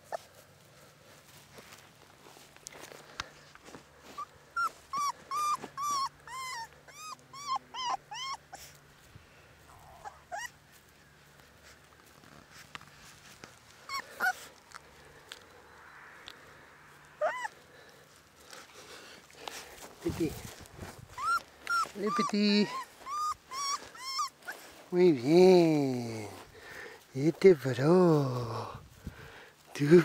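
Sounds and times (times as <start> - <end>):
puppy whimpering: 4.2 - 8.8, 9.7 - 10.6, 13.8 - 14.8, 17.2 - 17.6, 21.0 - 24.8.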